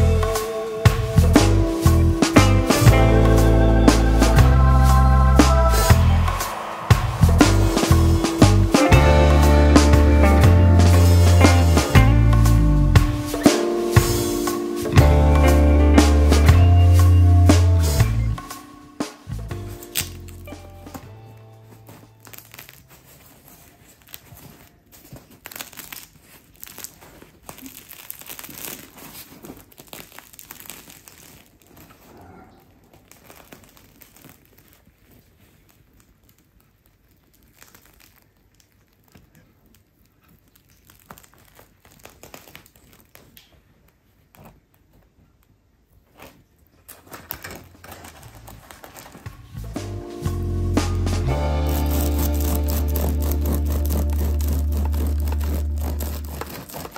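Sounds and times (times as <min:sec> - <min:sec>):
bread crust crackling: 0:19.3 - 0:56.9.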